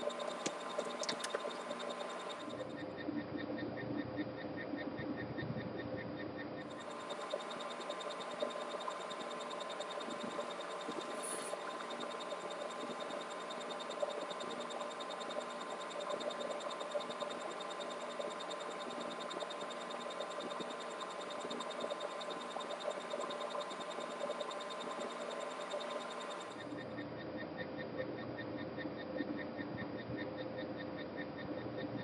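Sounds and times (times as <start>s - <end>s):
room tone hiss and hum: 0.0s - 32.0s.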